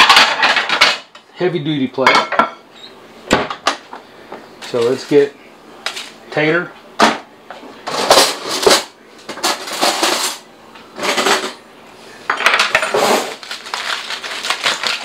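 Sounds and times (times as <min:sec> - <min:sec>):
aluminum foil crinkling: 0:12.4 - 0:15.0.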